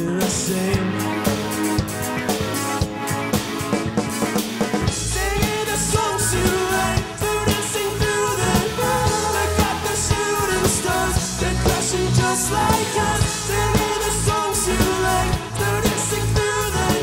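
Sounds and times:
man singing: 0.0 - 1.4, 5.0 - 17.0
rock band playing live: 0.0 - 17.0.

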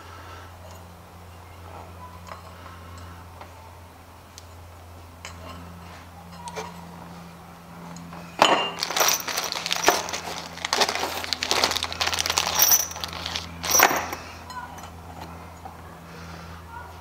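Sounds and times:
steady low hum: 0.0 - 17.0
metal bolts clinking: 8.4 - 15.0
plastic bag crinkling: 8.6 - 14.2.

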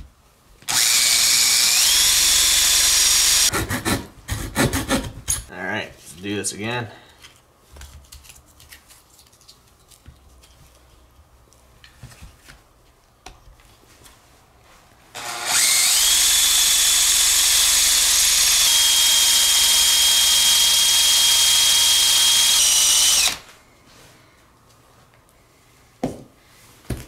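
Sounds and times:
cordless drill whining: 0.7 - 3.5, 15.2 - 23.5.

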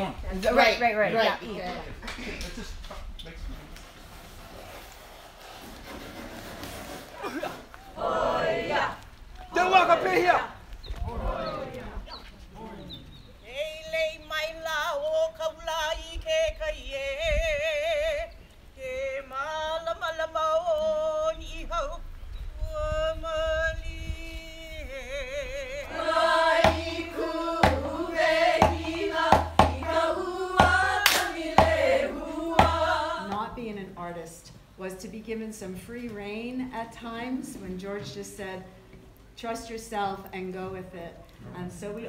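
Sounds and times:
women chanting: 7.8 - 12.1, 25.0 - 33.6
gourd drum thumps and slaps: 25.9 - 33.5.

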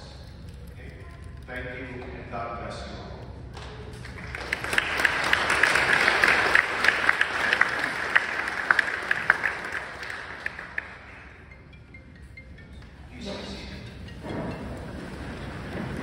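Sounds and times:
audience applauding: 3.9 - 11.6.

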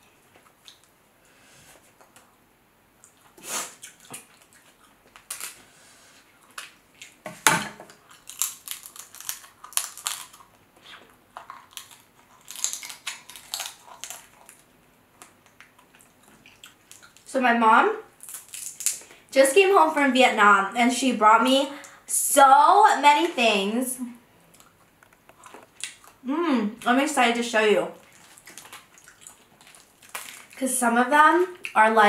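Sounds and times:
wet chewing and lip smacking: 0.3 - 1.0, 3.0 - 5.6, 7.9 - 17.3, 24.5 - 26.2, 28.0 - 30.6
shells cracking and snapping: 5.1 - 5.6, 7.9 - 10.6, 11.4 - 15.8, 18.2 - 19.2, 28.4 - 30.6.

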